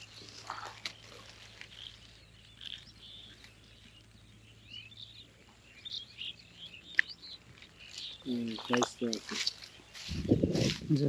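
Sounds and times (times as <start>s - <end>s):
bird chirps and calls: 0.0s - 11.0s.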